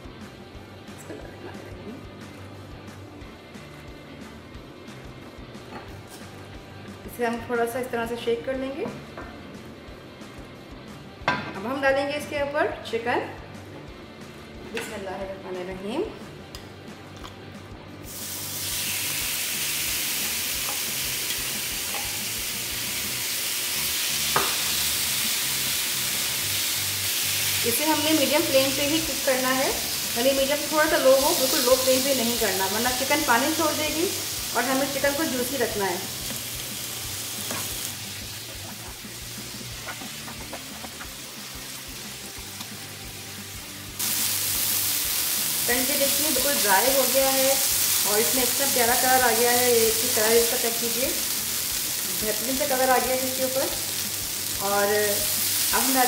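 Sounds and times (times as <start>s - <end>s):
soft background music: 0.0s - 56.0s
chicken sizzling in oil: 18.0s - 56.0s.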